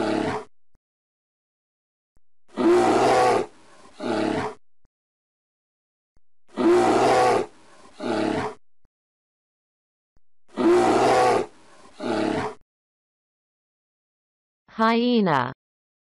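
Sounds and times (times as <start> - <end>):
grizzly bear roaring: 0.0 - 0.5, 2.5 - 4.6, 6.5 - 8.6, 10.5 - 12.6.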